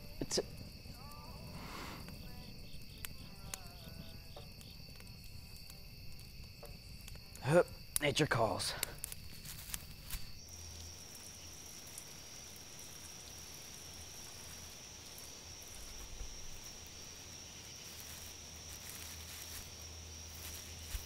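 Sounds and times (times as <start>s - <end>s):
crickets droning: 0.0s - 21.0s.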